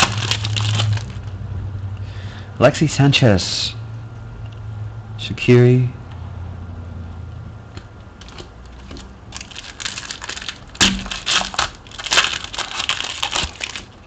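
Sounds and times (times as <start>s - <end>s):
foil wrapper tearing and crinkling: 0.0s - 1.3s, 8.9s - 14.0s.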